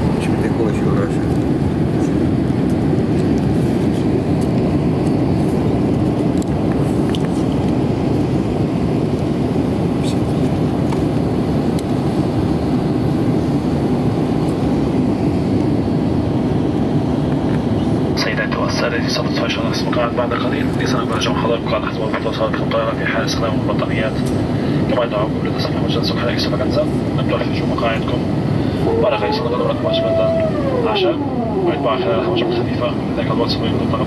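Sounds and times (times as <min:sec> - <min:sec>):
jet engines roaring: 0:00.0 - 0:34.0
rushing airflow: 0:28.0 - 0:33.9.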